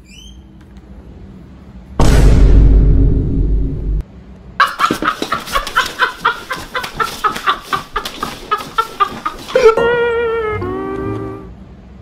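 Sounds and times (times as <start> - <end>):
chicken clucking rapidly: 4.6 - 9.8.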